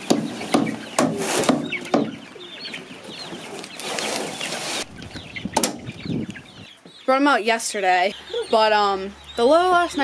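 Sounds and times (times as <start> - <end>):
chicks peeping: 0.0 - 10.0
plastic tote scraping: 3.3 - 4.9.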